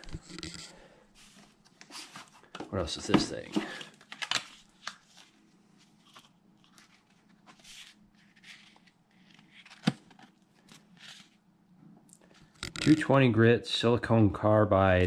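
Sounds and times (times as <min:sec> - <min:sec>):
paper packaging rustling: 0:00.0 - 0:11.4.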